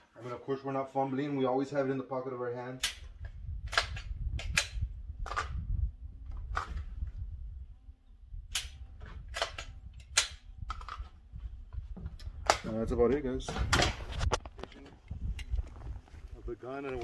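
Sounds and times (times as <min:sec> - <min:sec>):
handgun clicks and snaps: 0:02.8 - 0:05.6, 0:08.5 - 0:11.1.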